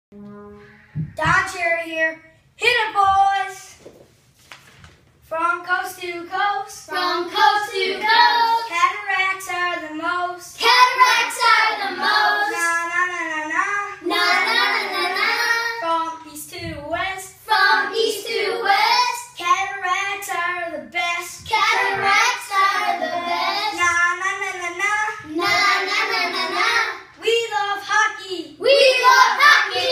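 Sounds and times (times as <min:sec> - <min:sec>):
boys singing in unison: 0:21.4 - 0:23.8.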